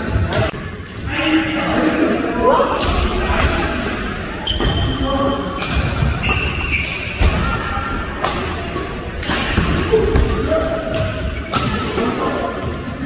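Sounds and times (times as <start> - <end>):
racket hitting shuttlecock: 8.2 - 12.1.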